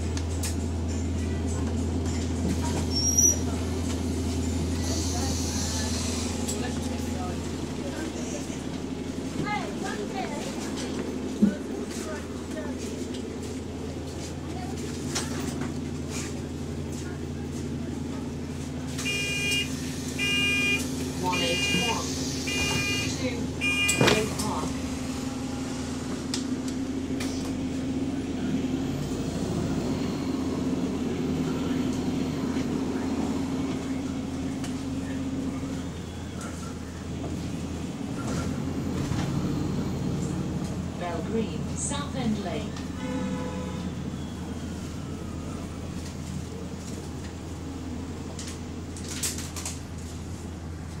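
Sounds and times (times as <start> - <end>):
bus diesel engine running: 0.0 - 51.0
road noise: 0.0 - 51.0.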